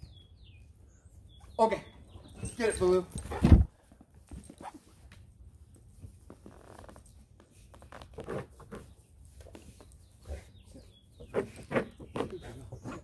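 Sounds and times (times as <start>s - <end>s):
dog scraping and rustling fabric: 11.2s - 13.0s.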